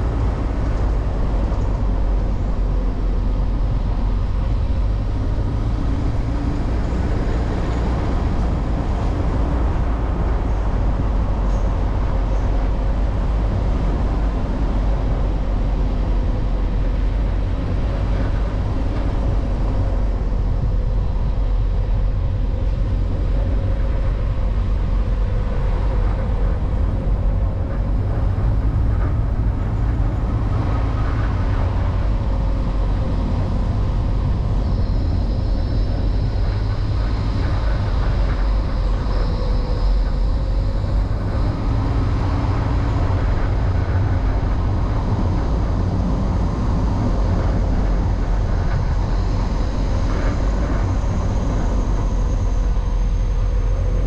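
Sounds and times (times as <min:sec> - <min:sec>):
faint engine tone: 0:00.0 - 0:54.0
road and wind rumble: 0:00.0 - 0:54.0.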